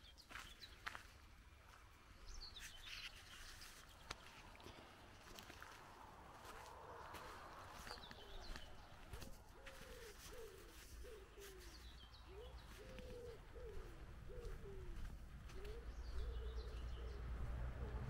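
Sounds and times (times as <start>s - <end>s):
small birds chirping: 0.0s - 18.0s
pigeon cooing: 7.8s - 18.0s.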